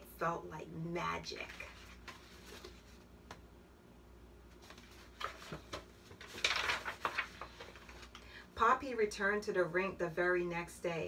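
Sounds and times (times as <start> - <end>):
book page turning: 1.4 - 3.4, 4.5 - 8.2.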